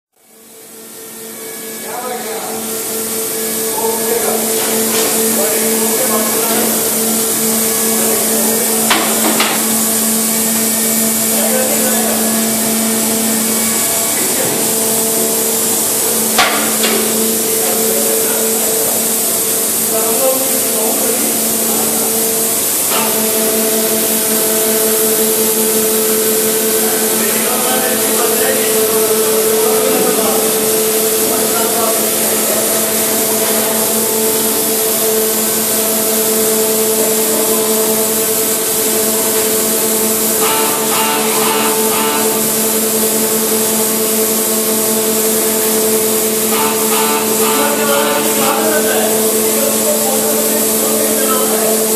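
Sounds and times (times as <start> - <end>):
loud machinery hum: 0.1 - 51.9
sharp knocks: 16.4 - 17.1.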